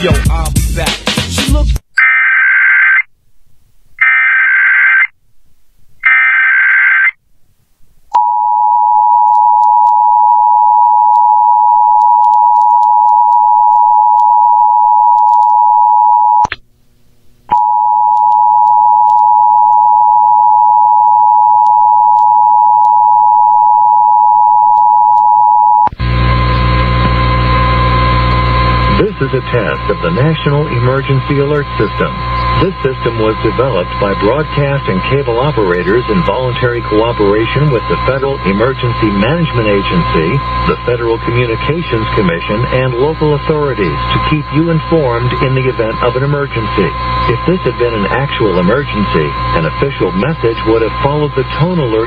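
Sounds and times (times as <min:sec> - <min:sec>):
screeching digital data bursts: 0:29.4 - 0:42.1, 0:42.8 - 0:52.0.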